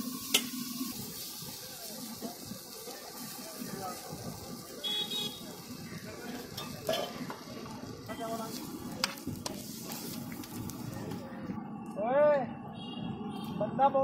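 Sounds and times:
food sizzling on a griddle: 0.0s - 11.2s.

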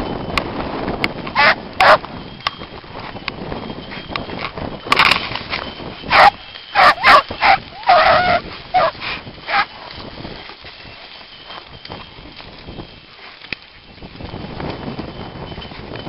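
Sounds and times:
beagles baying: 1.4s - 2.0s, 6.0s - 10.0s.

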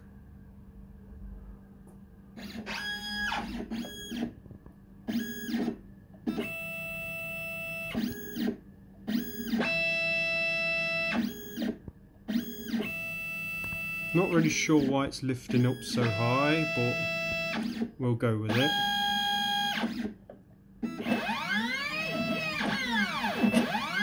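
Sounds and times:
steady low hum: 0.0s - 24.0s
stepper motors whining: 5.1s - 17.9s, 18.5s - 20.2s, 20.8s - 24.0s.

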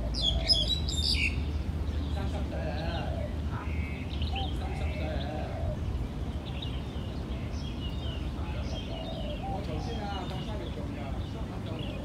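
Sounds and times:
wavering low bird call: 0.0s - 1.5s, 8.0s - 10.2s
birds chirping: 0.0s - 12.0s.

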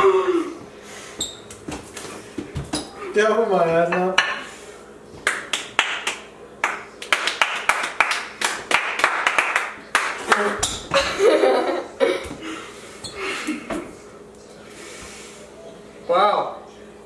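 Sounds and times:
quick hand clapping: 5.2s - 10.6s
people laughing: 10.4s - 14.0s.

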